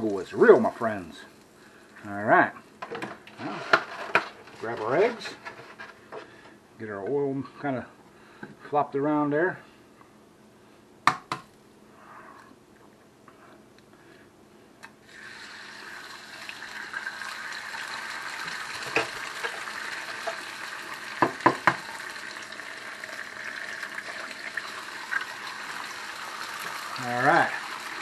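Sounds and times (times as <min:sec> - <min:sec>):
eggs sizzling in oil: 0:15.0 - 0:28.0.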